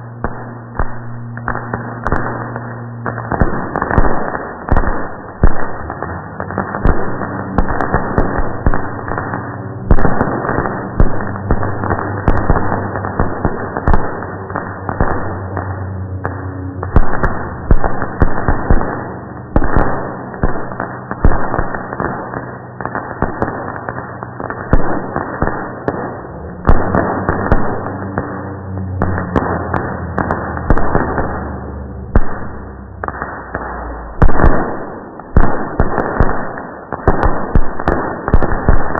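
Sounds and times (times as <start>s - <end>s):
slowed fireworks bangs and crackling: 0.0s - 38.9s.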